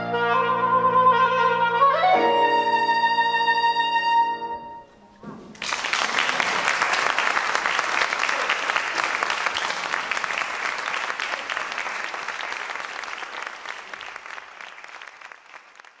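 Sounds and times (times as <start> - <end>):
audience applauding: 5.4 - 16.0.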